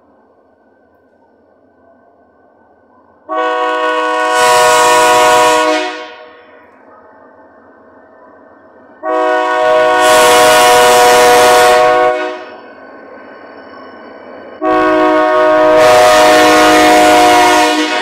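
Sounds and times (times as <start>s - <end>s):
locomotive air horn blasts: 3.3s - 6.6s, 9.0s - 12.6s, 14.6s - 18.0s.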